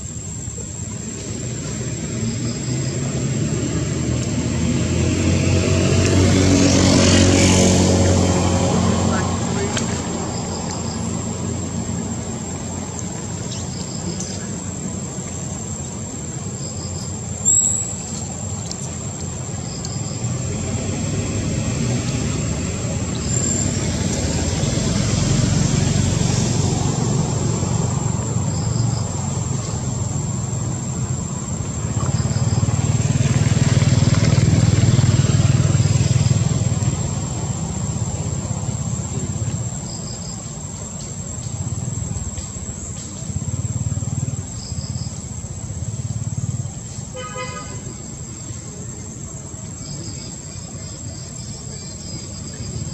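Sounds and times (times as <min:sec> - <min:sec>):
faint short high chirps: 0:17.4 - 0:18.0.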